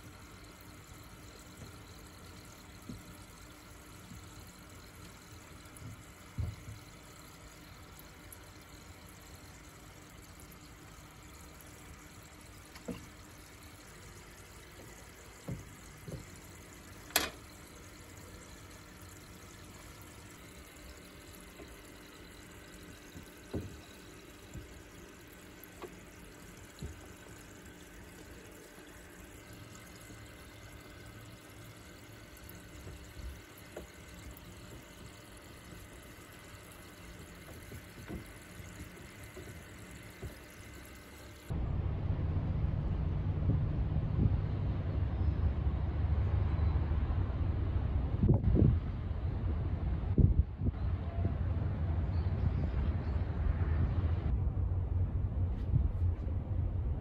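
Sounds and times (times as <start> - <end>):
water bubbling and trickling: 0.0 - 41.6
knocks and splashes in water: 10.3 - 41.1.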